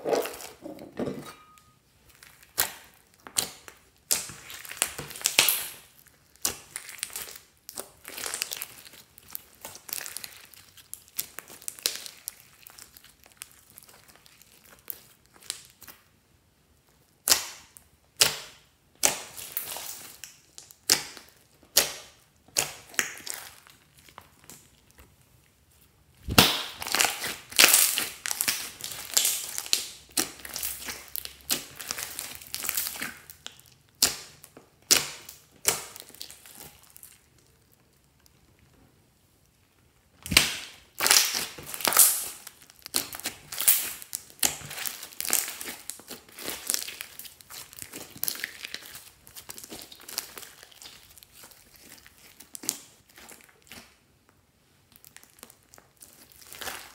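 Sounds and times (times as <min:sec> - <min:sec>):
slime squishing and popping: 0:01.5 - 0:16.1, 0:17.2 - 0:25.0, 0:26.2 - 0:38.3, 0:40.2 - 0:54.0, 0:54.9 - 0:56.9
sharp slap: 0:26.2 - 0:26.8.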